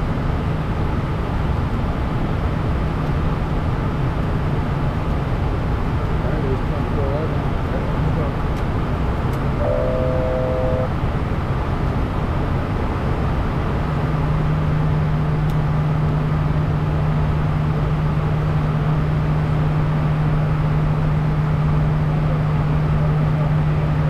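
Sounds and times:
jet engine rumble and airflow: 0:00.0 - 0:24.0
steady low hum: 0:09.1 - 0:11.2
short electronic tone: 0:09.6 - 0:10.9.

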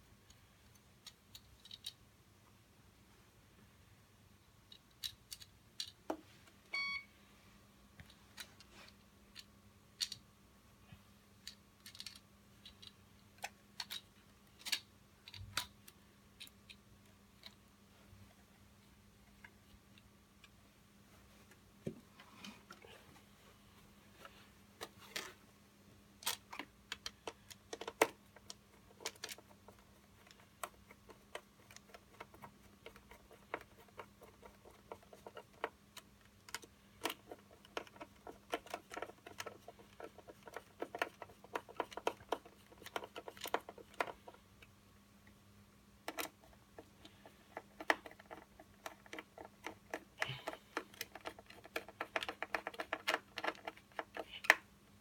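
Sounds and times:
hands clicking and tapping plastic parts: 0:00.1 - 0:02.0, 0:04.5 - 0:07.0, 0:08.0 - 0:10.3, 0:11.4 - 0:17.7, 0:26.2 - 0:45.4, 0:46.0 - 0:54.8.

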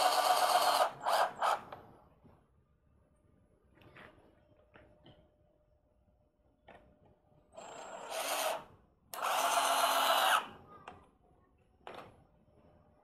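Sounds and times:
drill driving screw into wood: 0:00.0 - 0:01.7, 0:07.6 - 0:10.5.

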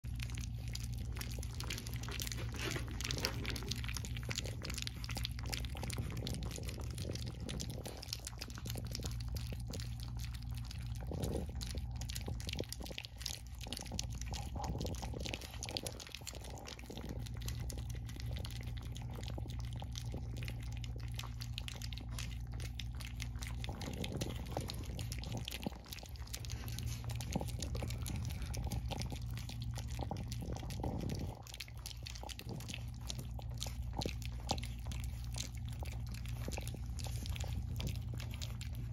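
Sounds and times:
puppies lapping wet food: 0:00.0 - 0:38.9
steady low hum: 0:00.0 - 0:38.9.

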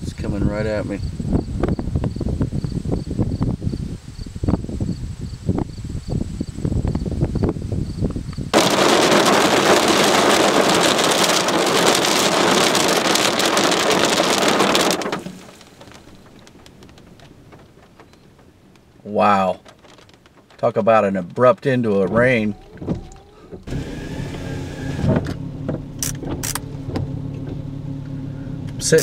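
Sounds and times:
wind buffeting microphone: 0:00.0 - 0:20.6
heavy rain on car roof: 0:08.5 - 0:26.5.

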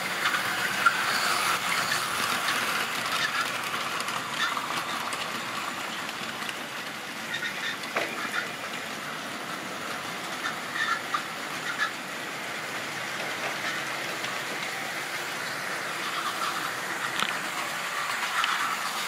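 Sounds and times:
model train wheels rattling: 0:00.0 - 0:19.0.

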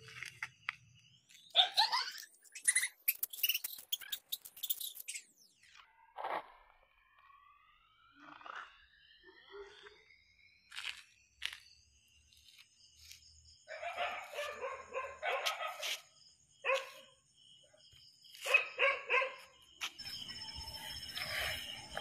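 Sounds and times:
high insect trill: 0:00.0 - 0:05.7, 0:07.3 - 0:22.0
dogs barking: 0:13.7 - 0:17.1, 0:18.4 - 0:19.6.

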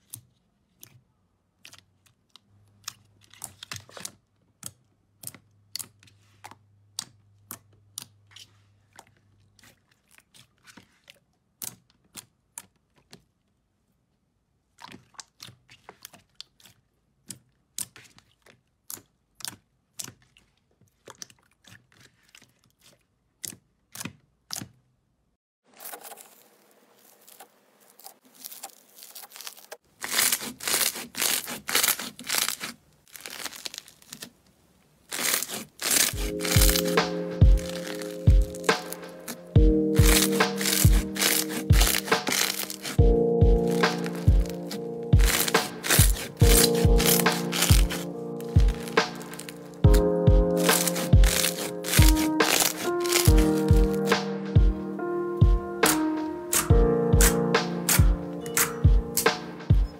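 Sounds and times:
crunchy bead slime crackling: 0:25.8 - 0:54.8.

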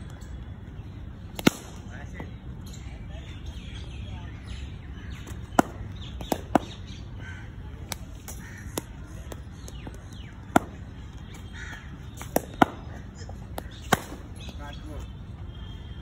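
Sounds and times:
birds calling: 0:00.0 - 0:16.0
cricket ball striking bat: 0:01.4 - 0:01.8, 0:05.4 - 0:06.8, 0:07.9 - 0:10.9, 0:12.1 - 0:14.6.

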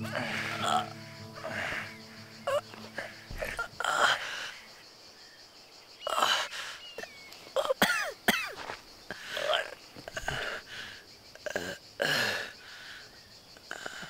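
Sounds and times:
man coughing and wheezing: 0:07.6 - 0:08.6.

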